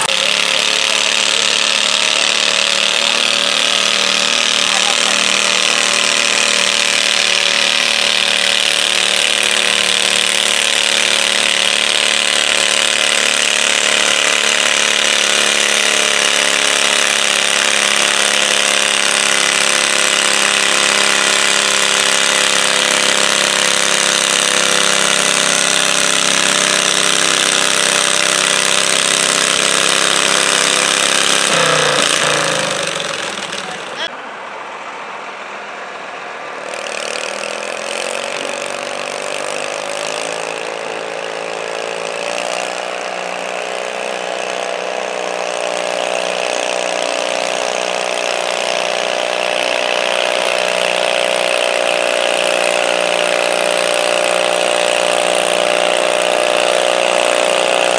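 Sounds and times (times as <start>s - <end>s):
small engine at full throttle: 0.0s - 34.2s, 36.5s - 57.9s.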